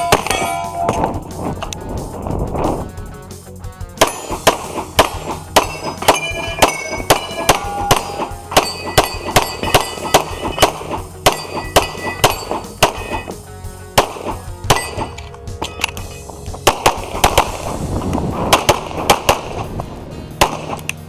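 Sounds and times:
steel target clanging: 0:00.0 - 0:01.2, 0:04.0 - 0:13.4, 0:14.6 - 0:16.5
rapid pistol fire: 0:04.0 - 0:13.3, 0:13.9 - 0:15.1, 0:16.6 - 0:17.8, 0:18.4 - 0:19.7, 0:20.4 - 0:20.8.

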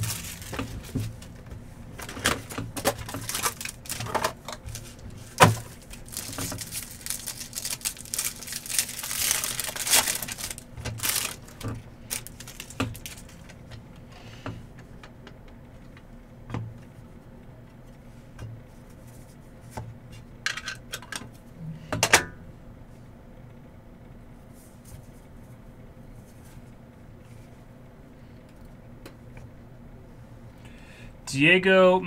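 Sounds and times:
rustling and crinkling packs: 0:00.0 - 0:13.8.

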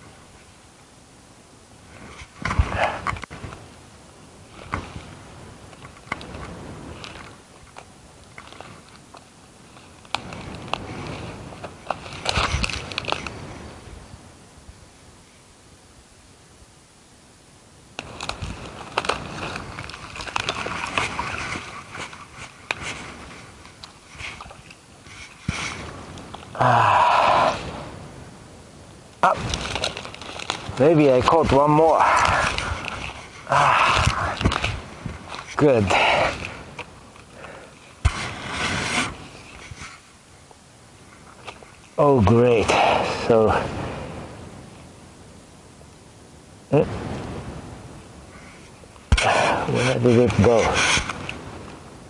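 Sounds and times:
close rustling and crunching: 0:04.4 - 0:13.6, 0:17.9 - 0:28.0, 0:29.0 - 0:43.5, 0:48.2 - 0:51.9
splashing in shallow water: 0:18.1 - 0:23.1.

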